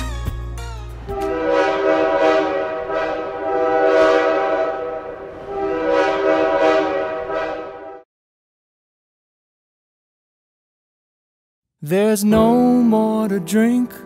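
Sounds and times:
horn-like sustained chord: 1.1 - 8.0.

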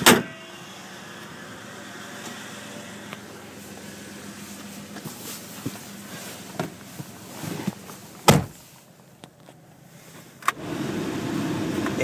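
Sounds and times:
car door shutting: 0.0 - 0.4, 4.9 - 8.7
faint idling engine: 0.0 - 12.0.

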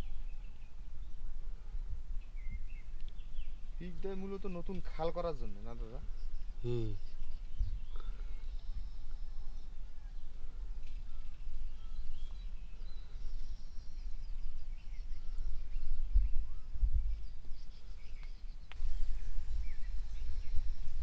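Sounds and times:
wind buffeting microphone: 0.0 - 3.9, 6.0 - 21.0
bird chirps: 5.6 - 21.0.

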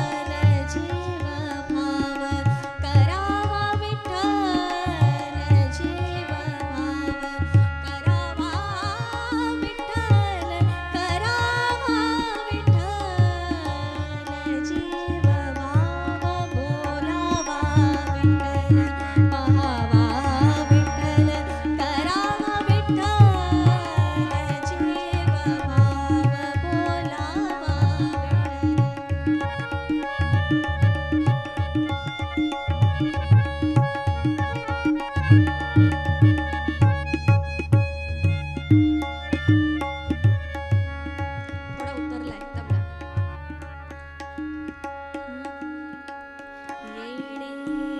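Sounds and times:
woman singing: 0.0 - 32.2, 41.1 - 43.4, 45.1 - 47.9
harmonium sustained notes: 0.0 - 47.9
tabla rhythm: 0.0 - 47.9.

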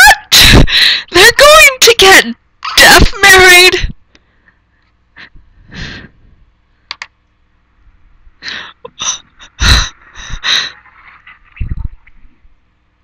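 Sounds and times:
woman laughing: 0.0 - 0.6, 8.5 - 10.8.

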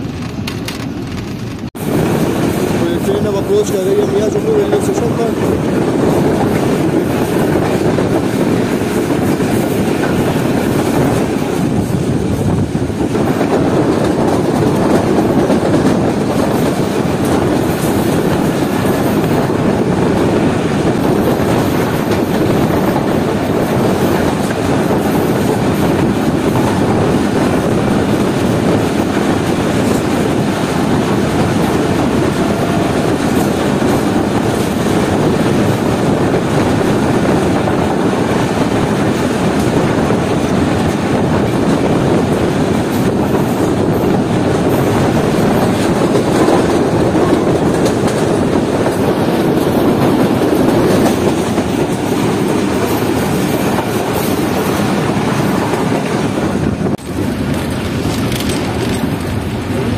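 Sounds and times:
train wheels on rails: 0.0 - 59.9.

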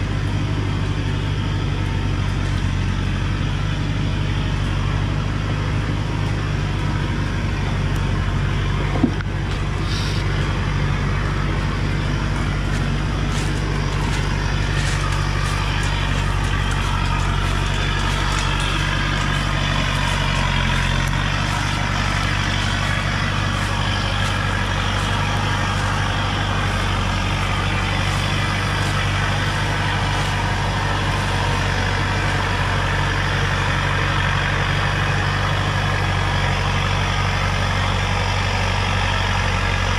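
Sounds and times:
diesel truck engine droning: 0.0 - 39.9.

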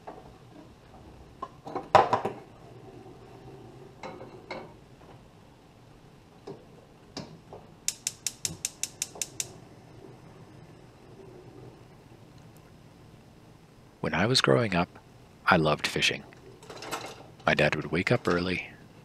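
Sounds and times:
stove igniter clicking rapidly: 7.8 - 9.6.

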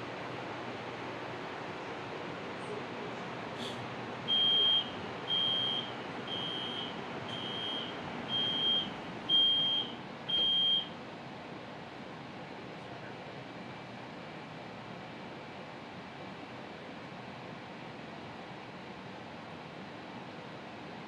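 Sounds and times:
door-closing warning beeps: 4.3 - 10.9.

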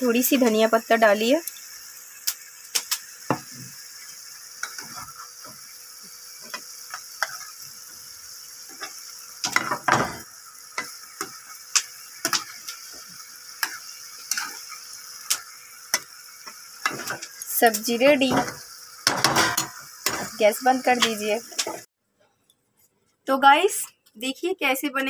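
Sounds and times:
sizzling hiss: 0.0 - 21.9
spatula scraping a pan: 4.6 - 5.6, 6.4 - 7.7, 8.7 - 17.4, 18.2 - 21.8.

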